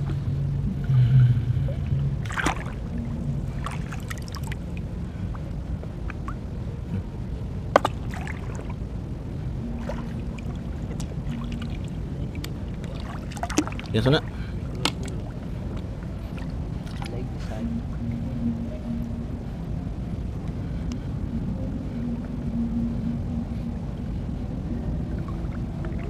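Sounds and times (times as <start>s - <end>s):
steady low rumble: 0.0s - 26.0s
sharp splashes: 2.2s - 2.8s, 7.8s - 8.7s, 10.9s - 15.3s
seawater sloshing and splashing: 2.2s - 4.8s, 7.7s - 8.8s, 9.7s - 17.4s.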